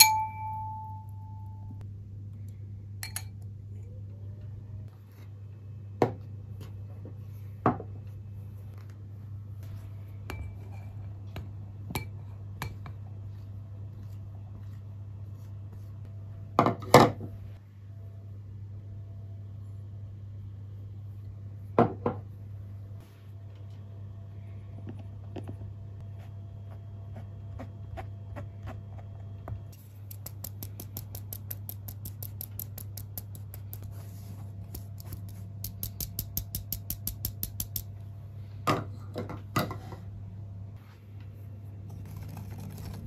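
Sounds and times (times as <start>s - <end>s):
low steady hum: 0.0s - 43.0s
flour sifting through sieve: 13.1s - 16.1s, 29.8s - 35.8s.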